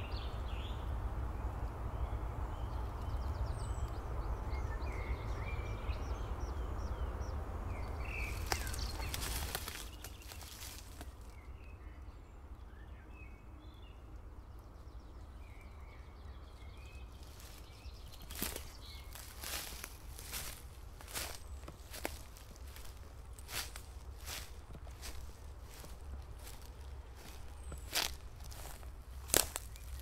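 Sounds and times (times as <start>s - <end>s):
small birds chirping: 0.0s - 30.0s
steady low rumble: 13.7s - 30.0s.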